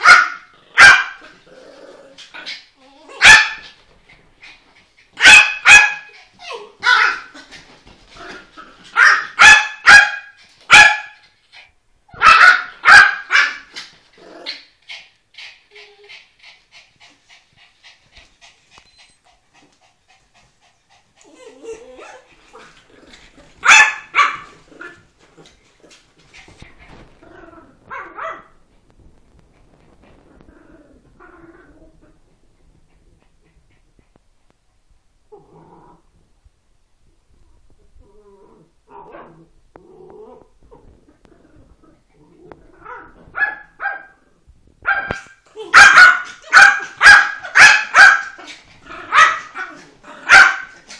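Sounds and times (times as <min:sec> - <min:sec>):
dog barks: 0:00.0 - 0:01.3, 0:03.2 - 0:03.8, 0:05.2 - 0:06.2, 0:06.8 - 0:07.3, 0:08.9 - 0:11.2, 0:12.1 - 0:13.8, 0:23.6 - 0:24.6, 0:27.9 - 0:28.6, 0:42.8 - 0:44.2, 0:44.8 - 0:48.5, 0:49.1 - 0:50.9
dogs growling: 0:00.5 - 0:03.2, 0:13.8 - 0:14.7, 0:21.1 - 0:23.6, 0:24.4 - 0:27.9, 0:30.2 - 0:34.1, 0:35.3 - 0:36.1, 0:38.0 - 0:43.3, 0:48.4 - 0:50.9
dogs panting: 0:14.8 - 0:23.3.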